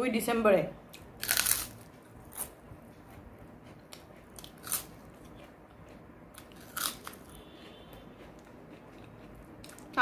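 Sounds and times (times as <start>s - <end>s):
crunching crisp food: 0.9s - 2.6s, 3.6s - 10.0s.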